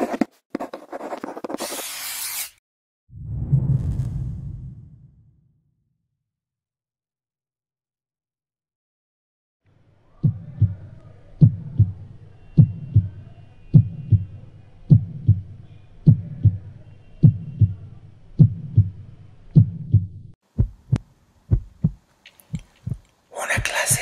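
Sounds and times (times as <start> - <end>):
heartbeat thumps: 10.2 - 10.8, 11.4 - 12.0, 12.6 - 14.3, 14.9 - 17.8, 18.4 - 24.0.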